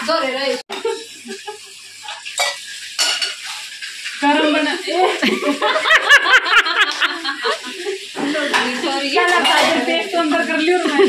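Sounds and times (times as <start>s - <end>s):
women talking: 0.0s - 0.6s, 4.2s - 11.0s
spoon clinking against bowls: 2.0s - 3.7s, 8.2s - 10.0s
women laughing: 5.0s - 8.1s, 10.8s - 11.0s.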